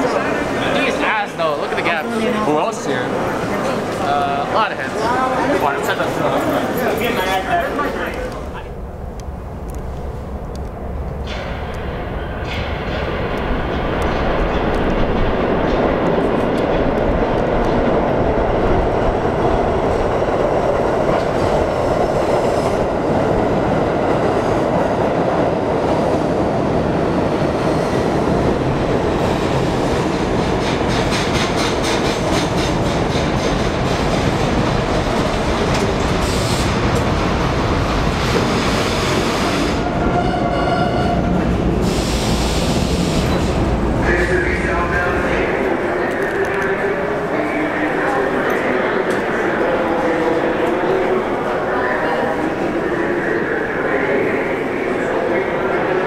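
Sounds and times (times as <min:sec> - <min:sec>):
subway train rumble: 0:00.0 - 0:56.0
wheels clickety-clack: 0:30.2 - 0:37.2.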